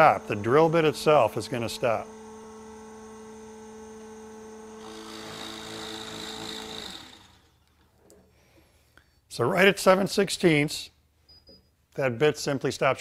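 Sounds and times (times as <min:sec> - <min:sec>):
drill bit boring into wood: 0:00.0 - 0:07.6
drill press motor humming: 0:00.0 - 0:08.2.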